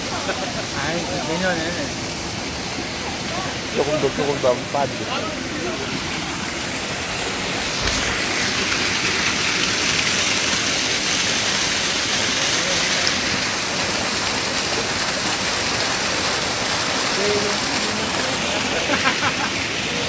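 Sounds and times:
stream water rushing over rock: 0.0s - 20.0s.

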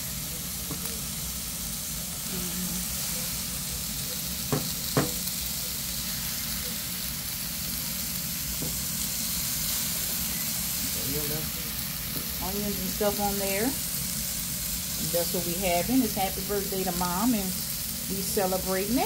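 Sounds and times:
food sizzling on grill: 0.0s - 19.0s.

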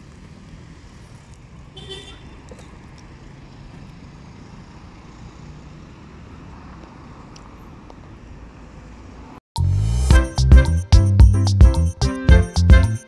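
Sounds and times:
road traffic hum: 0.0s - 9.7s.

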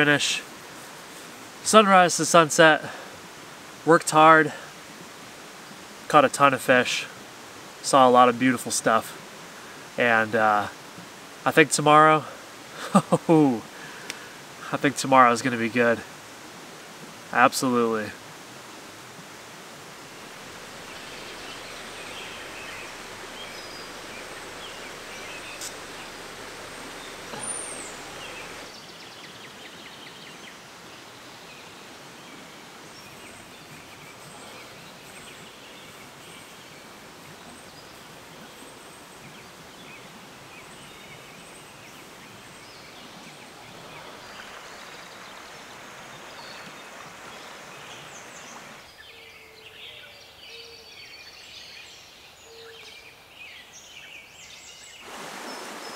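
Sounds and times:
steady background hiss: 0.0s - 55.9s
bird chirps and calls: 20.8s - 28.9s.

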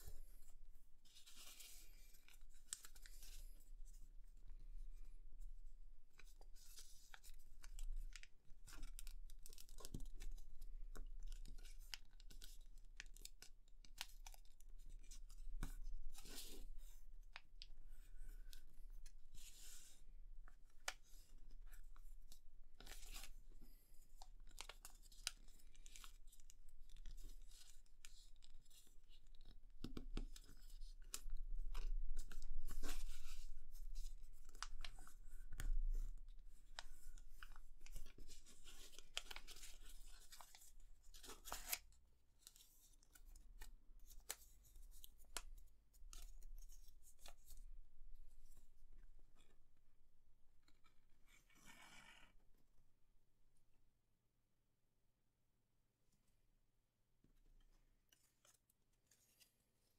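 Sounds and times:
paper being folded and creased: 1.0s - 4.0s, 6.1s - 17.0s, 17.8s - 47.6s, 57.5s - 59.9s.

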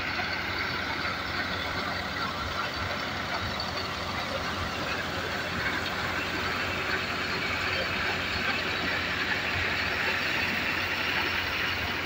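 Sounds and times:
tractor engine running thresher: 0.0s - 12.0s.

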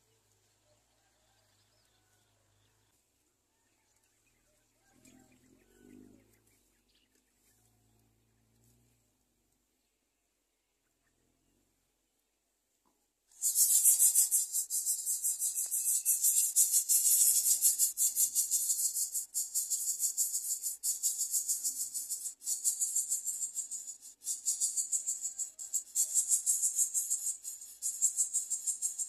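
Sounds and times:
shrill insect chorus: 13.3s - 29.0s.

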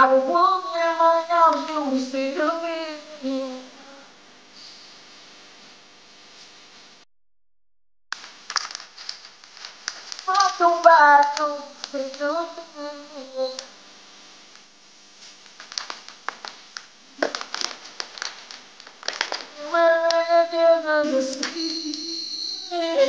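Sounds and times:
person singing wordlessly: 0.0s - 4.1s, 10.3s - 13.7s, 19.6s - 23.0s
plastic water bottle crinkling: 8.5s - 10.7s, 15.6s - 16.6s, 17.2s - 19.6s.

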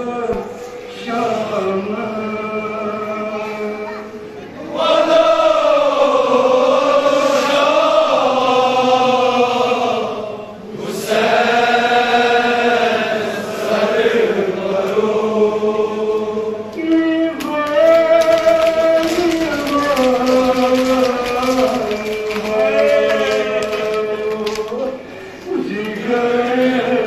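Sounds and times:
man chanting into a microphone: 0.0s - 4.0s, 16.7s - 27.0s.

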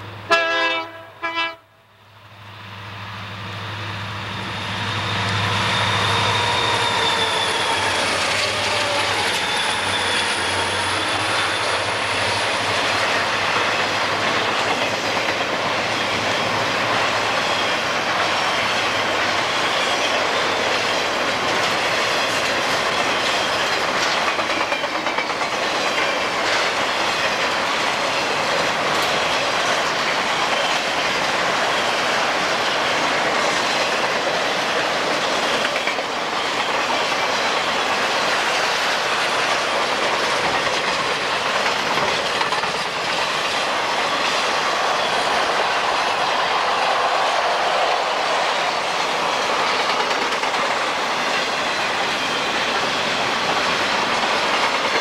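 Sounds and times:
freight cars rolling on rails: 3.4s - 55.0s
thin wheel squeal: 4.6s - 12.4s.

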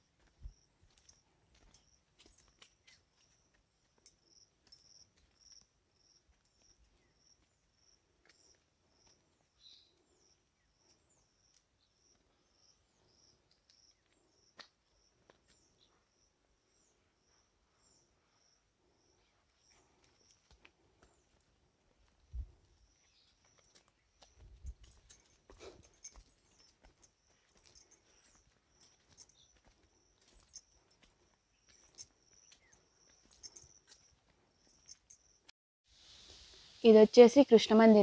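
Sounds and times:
cricket chirping: 4.0s - 9.1s, 31.7s - 35.5s.

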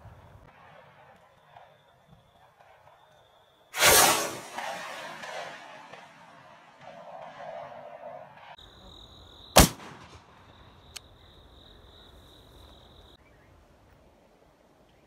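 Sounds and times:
shotgun shot: 3.8s - 6.2s, 9.6s - 10.3s.

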